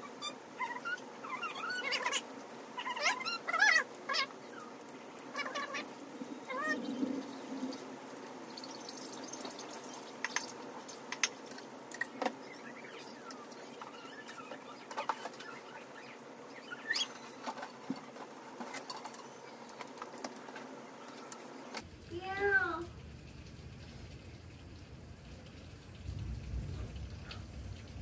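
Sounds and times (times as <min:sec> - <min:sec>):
low background hum: 0:00.0 - 0:28.0
vinyl weeding clicks and squeaks: 0:08.6 - 0:21.8.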